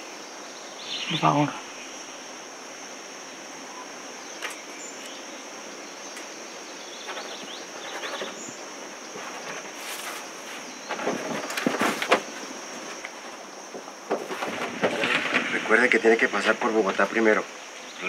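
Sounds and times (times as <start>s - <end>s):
high-pitched insect drone: 0.0s - 18.0s
rustles and knocks at a table: 9.1s - 15.5s.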